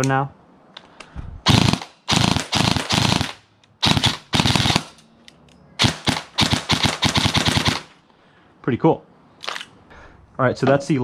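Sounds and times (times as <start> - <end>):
airsoft rifle firing bursts: 1.5 - 4.9, 5.8 - 8.0.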